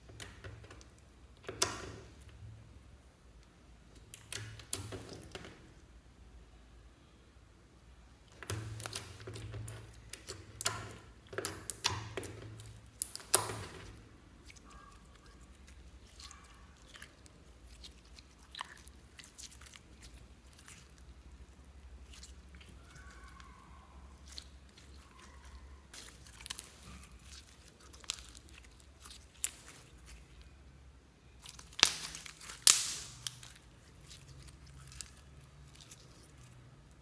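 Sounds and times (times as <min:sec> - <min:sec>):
slime crackling and popping: 0:08.2 - 0:30.6, 0:31.2 - 0:37.0.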